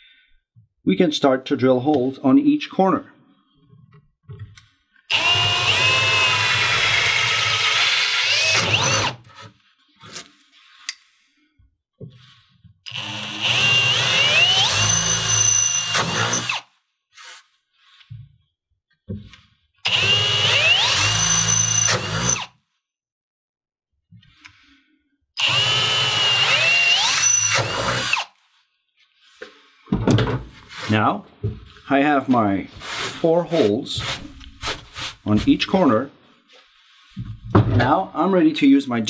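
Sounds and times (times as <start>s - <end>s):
cordless drill boring through acrylic: 5.1s - 9.5s, 12.8s - 18.0s, 19.8s - 22.6s, 25.4s - 28.4s.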